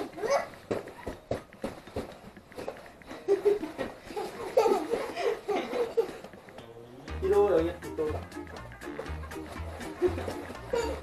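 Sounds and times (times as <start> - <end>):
child laughing: 0.0 - 0.6, 3.2 - 6.3, 9.9 - 11.0.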